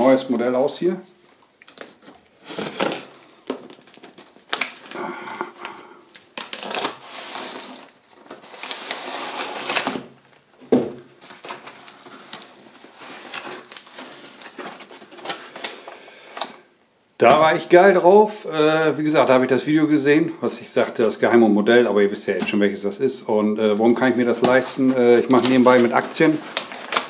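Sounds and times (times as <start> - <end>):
packing paper crinkling: 0.0 - 10.5, 11.1 - 16.5, 23.7 - 27.0.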